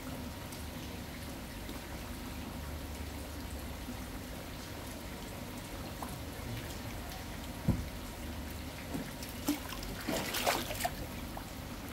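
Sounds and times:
steady rain: 0.0s - 9.1s
water pouring and trickling: 0.0s - 11.9s.

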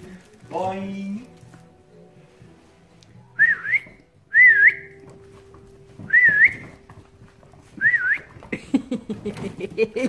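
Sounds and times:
person whistling a wavy call: 3.3s - 5.0s, 6.1s - 6.8s, 7.8s - 8.3s.

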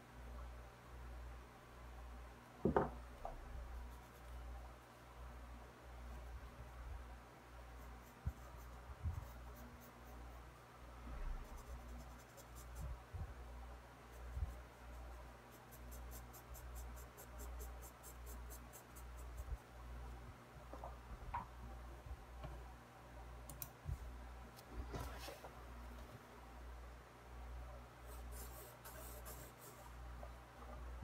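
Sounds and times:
steady low hum: 0.0s - 31.0s
pencil scratching on paper: 28.1s - 29.9s.

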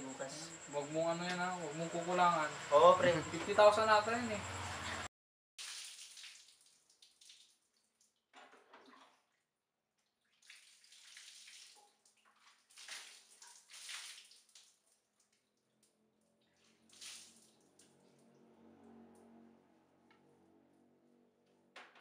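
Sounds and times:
water splashing and pouring: 5.6s - 15.3s, 16.6s - 18.1s.

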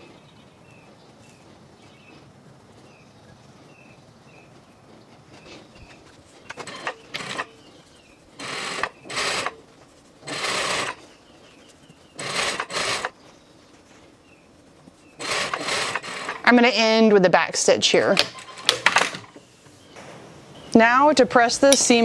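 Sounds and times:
sewing machine stitching: 6.5s - 7.5s, 8.4s - 9.6s, 10.2s - 11.0s, 12.2s - 13.1s, 15.2s - 16.5s.

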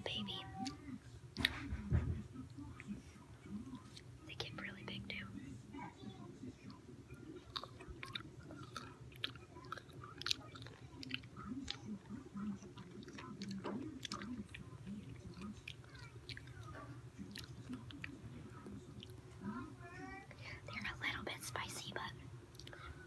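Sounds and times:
chewing crunchy pickle: 7.4s - 19.2s.

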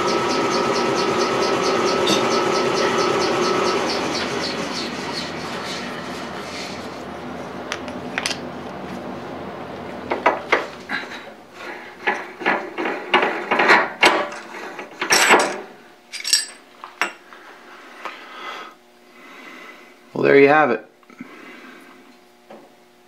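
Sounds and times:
machine hum: 0.0s - 23.0s
metallic clinks and clicks: 15.1s - 16.6s.

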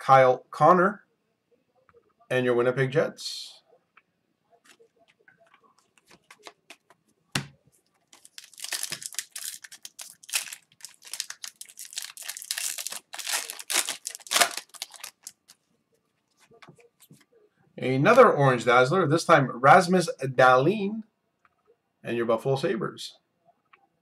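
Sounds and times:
foil wrapper crinkling: 8.1s - 15.6s.

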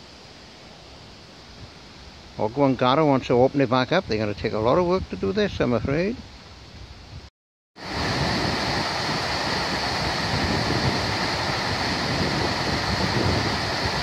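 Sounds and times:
water rushing over weir: 7.8s - 14.0s.

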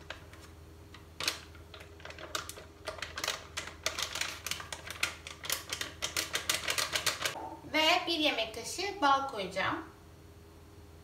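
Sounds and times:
plastic packet crinkling: 1.2s - 7.4s.

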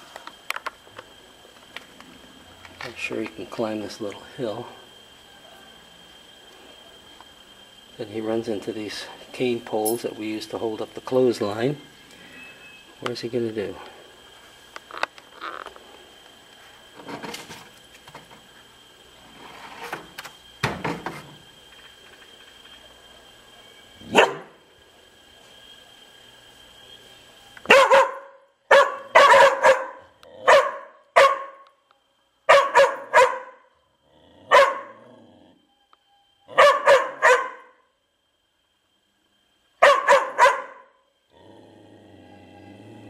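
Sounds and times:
dog barking: 24.1s - 24.6s, 27.7s - 31.6s, 32.5s - 33.7s, 34.5s - 35.1s, 36.5s - 37.8s, 39.8s - 40.9s.

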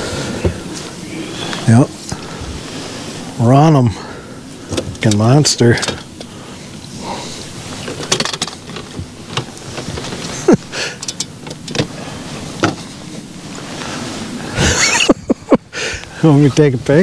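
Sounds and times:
knocks and clatter in boat: 8.0s - 10.5s.

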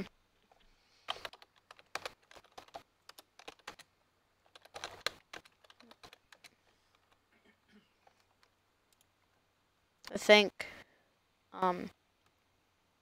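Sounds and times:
keyboard keys clicking: 1.1s - 3.8s, 4.4s - 7.2s.

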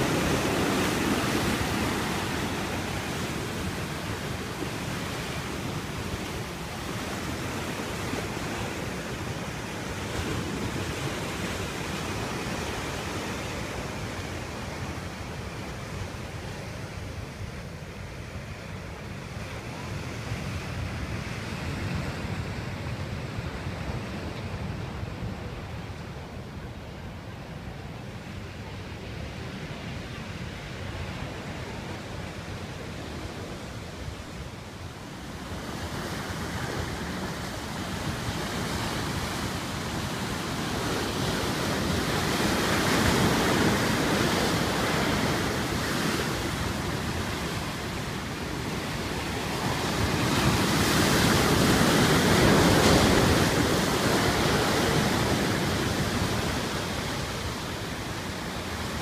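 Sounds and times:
sea waves breaking on rocks: 0.0s - 14.8s, 35.6s - 57.6s
wind rumbling on microphone: 0.0s - 59.0s.

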